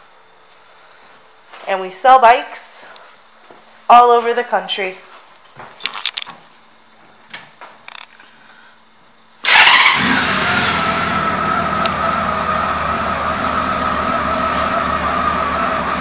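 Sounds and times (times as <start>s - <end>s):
motorcycle engine starting and idling: 9.4s - 16.0s.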